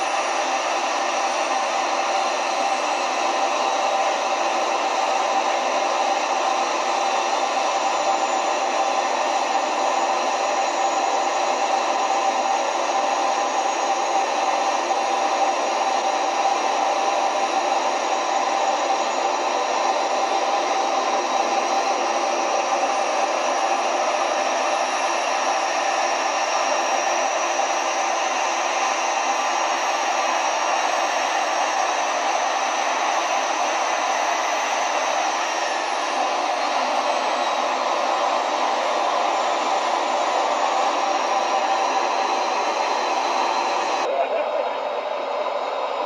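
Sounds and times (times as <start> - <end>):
gas turbine engine rushing: 0.0 - 46.0.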